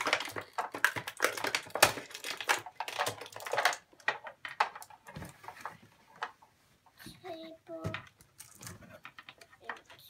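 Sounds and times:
packaging crinkling and rustling: 0.0s - 6.4s.

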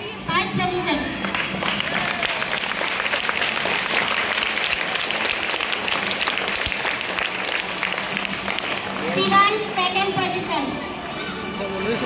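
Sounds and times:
hands clapping: 1.2s - 9.5s.

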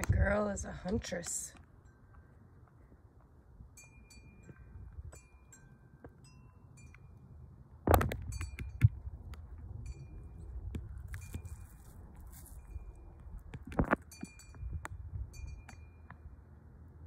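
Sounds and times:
chimes tinkling: 3.7s - 7.6s, 9.7s - 13.2s, 14.0s - 16.3s.

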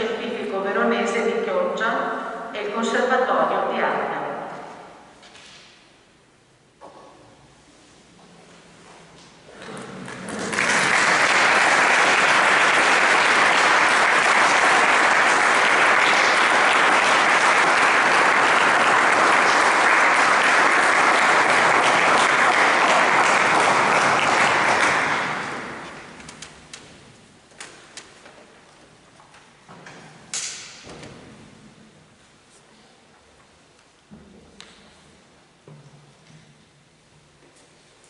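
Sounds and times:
audience applauding: 9.6s - 26.6s.

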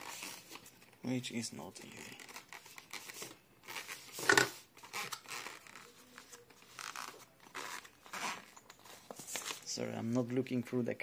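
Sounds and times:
zipper pulling: 6.7s - 8.6s.

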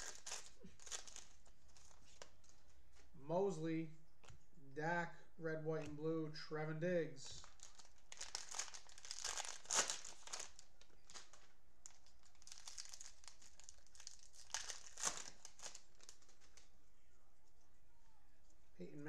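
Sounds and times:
plastic wrapper crinkling and tearing: 0.0s - 2.6s, 7.3s - 16.7s.

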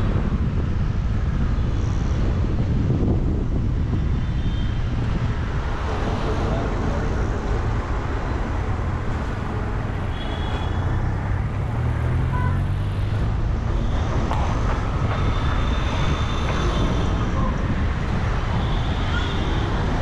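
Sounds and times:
low road rumble: 0.0s - 20.0s
passing traffic engines: 0.0s - 20.0s.

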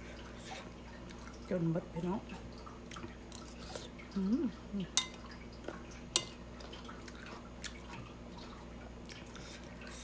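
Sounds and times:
wet chewing and smacking: 5.2s - 10.0s.

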